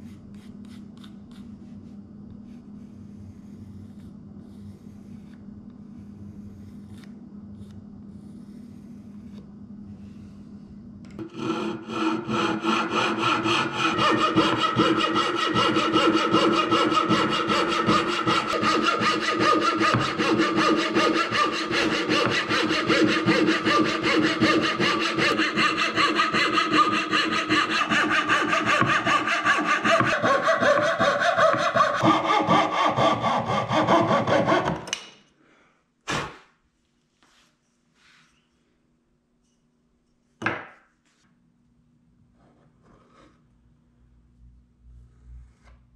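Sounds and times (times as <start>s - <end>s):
hand saw cutting wood: 11.2s - 35.0s.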